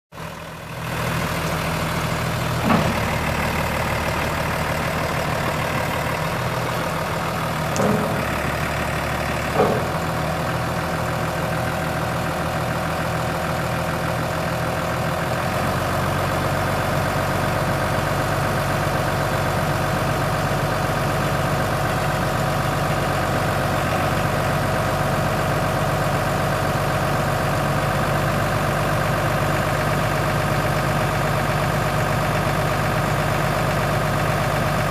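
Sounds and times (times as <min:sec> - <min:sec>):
tractor diesel engine idling: 0:00.1 - 0:34.9
short clunks: 0:02.6 - 0:03.4, 0:07.6 - 0:10.2.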